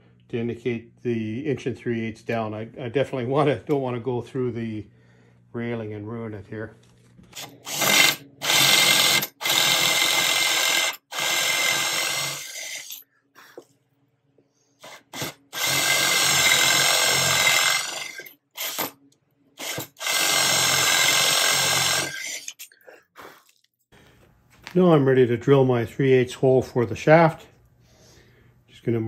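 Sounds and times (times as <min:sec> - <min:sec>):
power drill boring into wood: 0:07.4 - 0:13.0, 0:14.8 - 0:19.0, 0:19.6 - 0:22.7.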